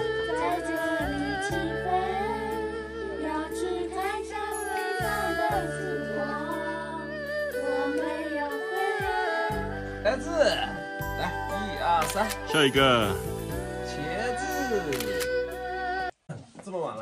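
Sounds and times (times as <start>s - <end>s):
girls singing together: 0.1s - 9.8s.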